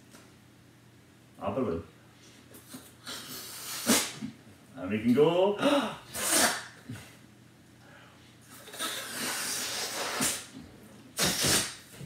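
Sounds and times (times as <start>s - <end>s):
air hissing out of balloon: 2.7s - 4.3s, 6.1s - 6.8s, 8.6s - 10.6s, 11.2s - 12.0s.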